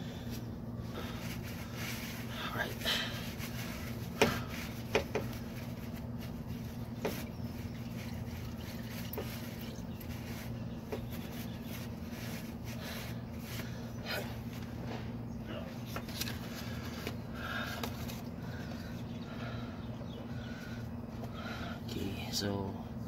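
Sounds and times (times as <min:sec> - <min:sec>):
steady low hum: 0:00.0 - 0:23.0
rag rubbing: 0:01.0 - 0:15.0.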